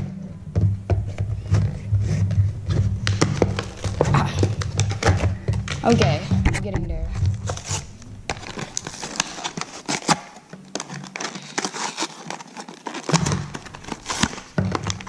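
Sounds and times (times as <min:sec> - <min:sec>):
plastic packaging crinkling and tearing: 0:03.0 - 0:06.2, 0:07.2 - 0:15.0.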